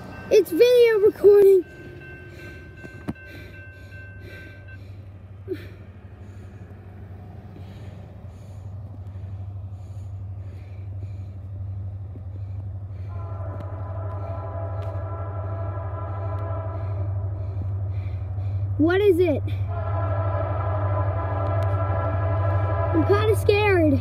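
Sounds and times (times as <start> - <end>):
railroad crossing bell ringing: 0.0 - 6.0, 13.0 - 24.0
low rumble: 1.6 - 24.0
multi-tone train horn: 12.9 - 18.8, 19.4 - 24.0.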